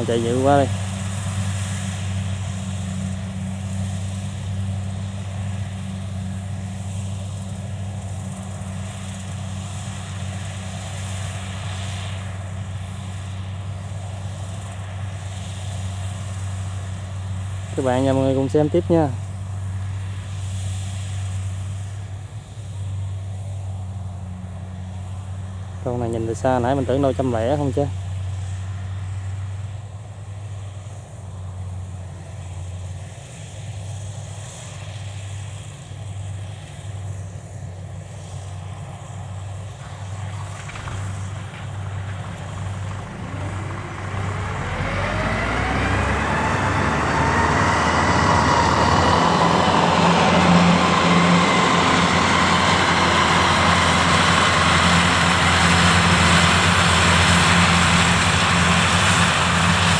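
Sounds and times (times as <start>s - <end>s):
combine harvester drone: 0.0s - 59.9s
rising machine whine: 40.6s - 59.8s.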